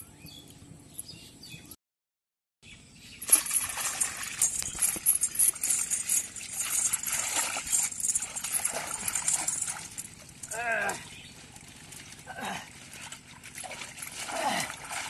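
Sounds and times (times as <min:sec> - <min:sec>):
pond water splashing: 0:03.2 - 0:15.0.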